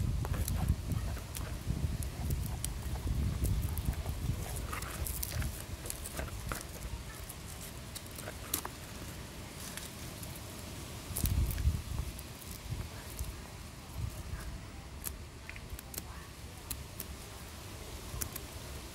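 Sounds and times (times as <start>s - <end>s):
rustle of handling: 0.0s - 18.9s
sharp clicks and snips: 11.1s - 13.3s, 14.3s - 17.2s, 18.1s - 18.5s.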